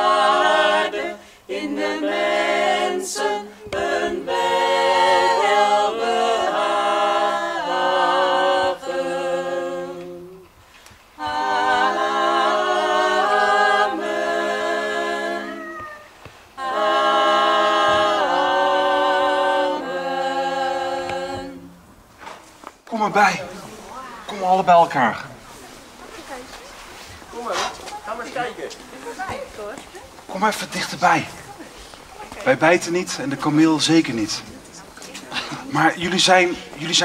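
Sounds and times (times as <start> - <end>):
choir singing a cappella: 0.0 - 21.9, 30.3 - 37.0.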